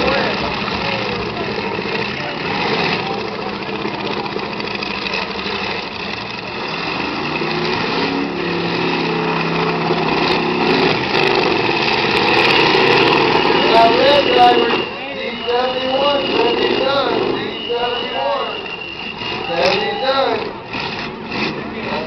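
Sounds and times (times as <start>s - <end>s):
car engines revving: 0.0s - 22.0s.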